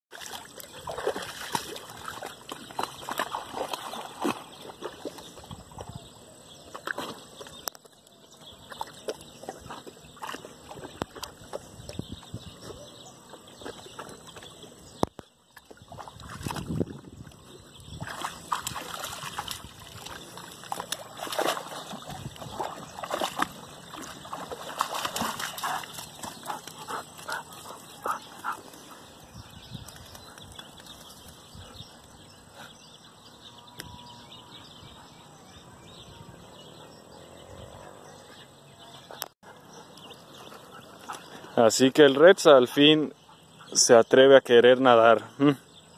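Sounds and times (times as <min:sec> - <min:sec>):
dog splashing in water: 0:00.1 - 0:05.9, 0:08.6 - 0:12.2, 0:15.6 - 0:17.3, 0:17.9 - 0:29.0.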